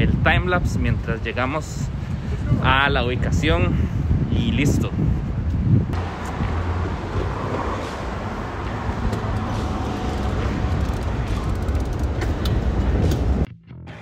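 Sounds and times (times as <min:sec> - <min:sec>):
cars passing: 0:05.2 - 0:13.5
low engine hum: 0:05.3 - 0:13.5.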